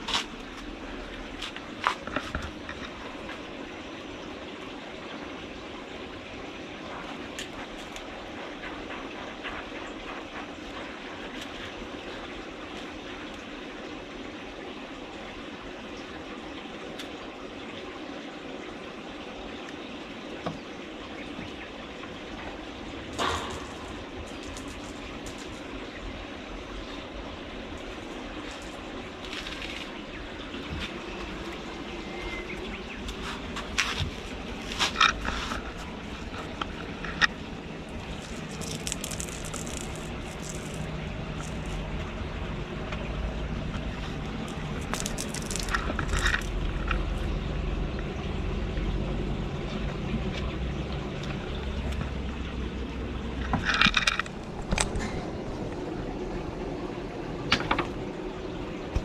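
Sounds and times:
steady rushing background noise: 21.2 - 59.0
kittens knocking and scraping: 23.0 - 25.8, 33.4 - 41.9, 43.6 - 47.2.

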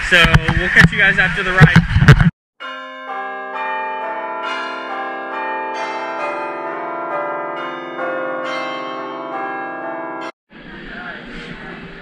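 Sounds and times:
bell-like chiming music: 2.6 - 10.4.

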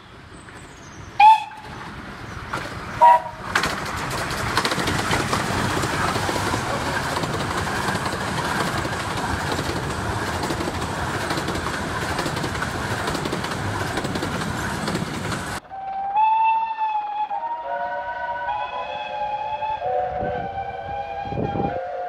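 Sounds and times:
train wheels rumbling on rail: 0.0 - 16.1
locomotive whistle: 1.2 - 1.9, 3.0 - 3.5, 15.6 - 22.0.

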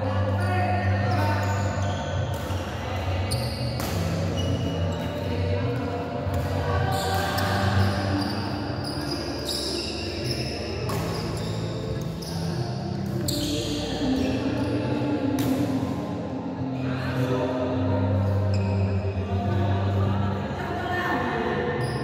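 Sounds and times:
racket hitting shuttlecock: 3.3 - 4.6, 10.8 - 11.4, 15.4 - 15.8.

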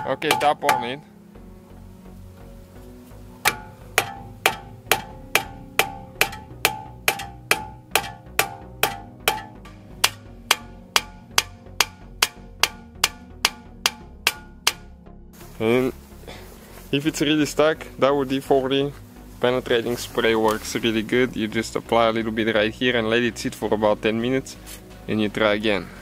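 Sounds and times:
hammer blows on steel: 0.0 - 1.1, 3.4 - 15.0.

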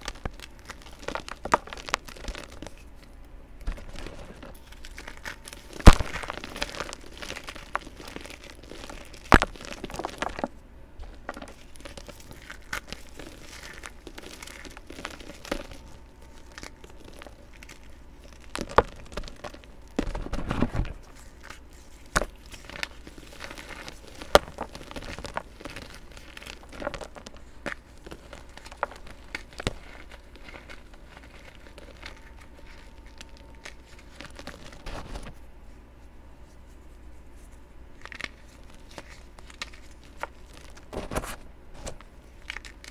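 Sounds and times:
pieces snapping apart: 0.0 - 2.9, 3.6 - 10.5, 11.2 - 35.3, 38.0 - 42.9
powder chunks crunching: 0.0 - 35.4, 37.9 - 42.9.

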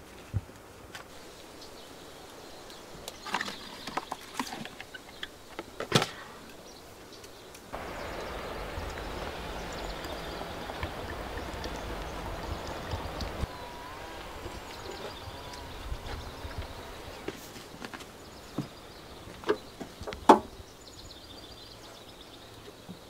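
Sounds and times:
steady rushing noise: 7.7 - 19.2
low rumble: 7.8 - 17.3.

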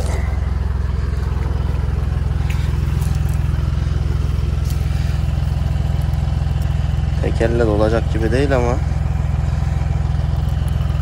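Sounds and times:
tractor engine idling: 0.0 - 11.0.

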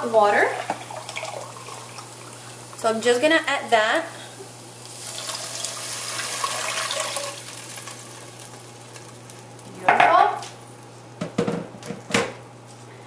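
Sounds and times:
water pouring into a pot: 0.6 - 2.8, 4.8 - 9.3.

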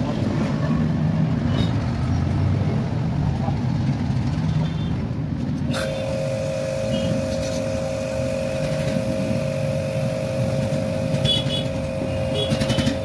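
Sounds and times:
street traffic: 0.0 - 13.0
steady whine: 5.7 - 13.0
vehicle engine running: 5.9 - 13.0.

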